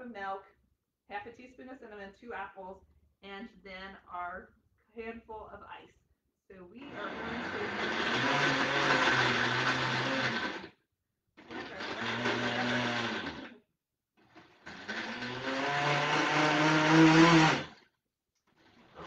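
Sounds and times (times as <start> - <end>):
blender blending: 6.8 - 10.8, 11.4 - 13.6, 14.2 - 19.0.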